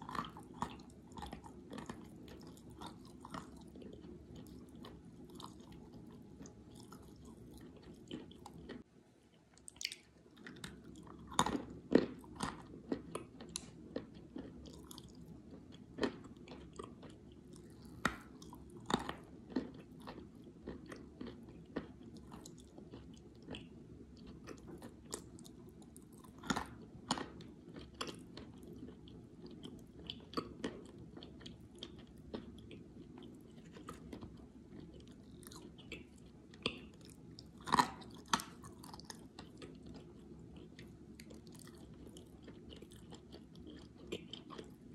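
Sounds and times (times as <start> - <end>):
chewing crunchy chalk: 0.0 - 8.8, 9.8 - 44.9
wet mouth sounds: 9.6 - 10.8.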